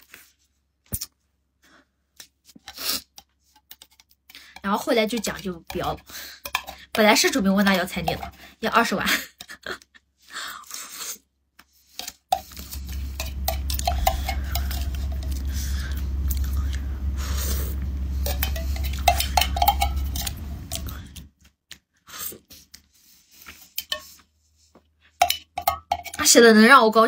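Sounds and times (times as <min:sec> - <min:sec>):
spoon scraping a metal can: 0:05.1 - 0:07.1, 0:07.8 - 0:08.4, 0:12.0 - 0:21.2, 0:25.2 - 0:26.3
low rumble: 0:12.6 - 0:21.3.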